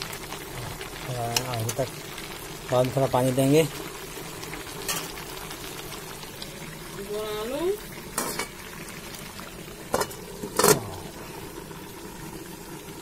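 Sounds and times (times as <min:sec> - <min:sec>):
chicken sizzling in a pan: 0:00.0 - 0:13.0
metal lid clanking on pan: 0:04.8 - 0:05.2, 0:08.2 - 0:08.6, 0:09.9 - 0:10.9.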